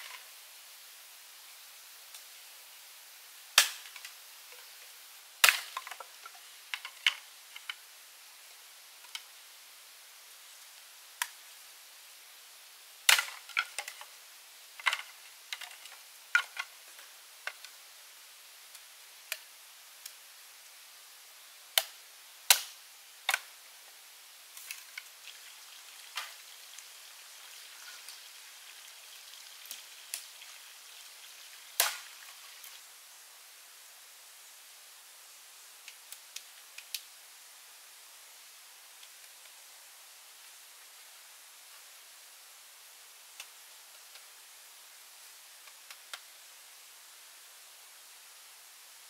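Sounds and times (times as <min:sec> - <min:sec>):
faint steady hiss: 0:00.0 - 0:49.0
sharp knocks or cracks: 0:31.8 - 0:32.1.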